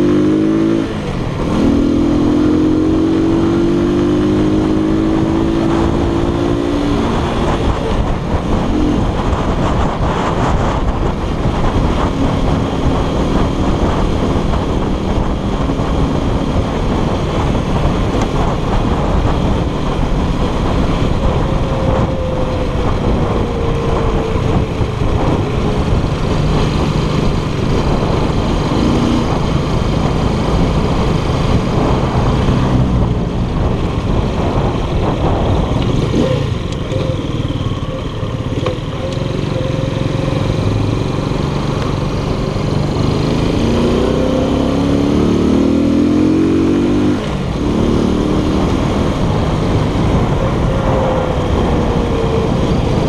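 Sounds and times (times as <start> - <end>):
wind noise: 0.0 - 53.0
scooter engine running: 7.1 - 44.2.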